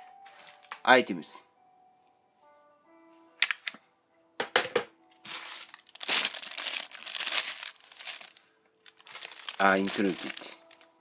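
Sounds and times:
plastic wrapping crinkling: 5.2s - 11.0s.

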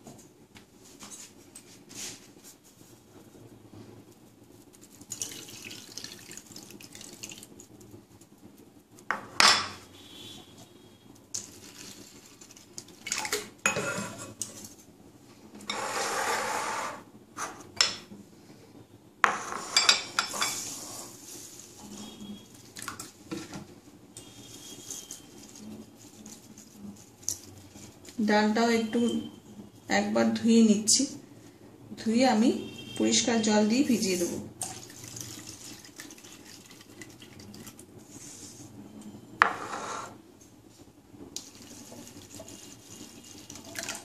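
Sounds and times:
water swished and poured: 5.0s - 7.6s, 34.6s - 38.3s, 41.4s - 44.0s.

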